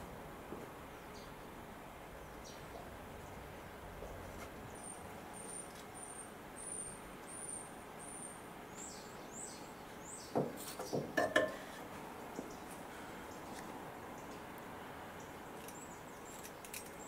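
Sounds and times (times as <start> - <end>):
small bird singing: 0.9 - 1.4, 2.2 - 3.4, 4.1 - 11.2, 15.2 - 17.0
metallic clinks and knocks: 15.6 - 17.0.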